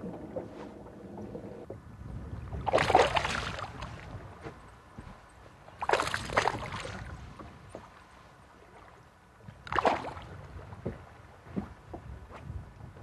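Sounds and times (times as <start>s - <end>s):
low steady rumble: 0.0s - 13.0s
fish splashing at water surface: 2.6s - 4.0s.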